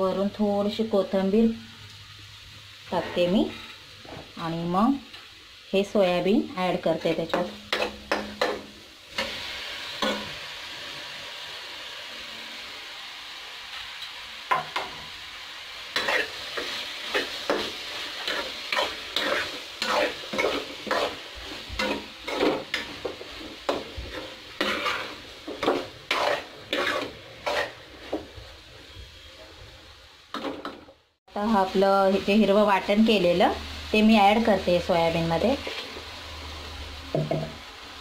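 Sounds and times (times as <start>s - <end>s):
food sizzling in oil: 0.0s - 38.0s
spoon scraping and clinking pan: 24.1s - 27.8s.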